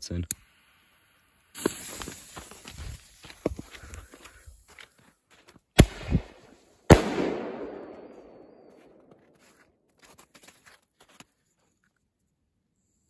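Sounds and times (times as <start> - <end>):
long echo of bang: 6.9 - 8.6.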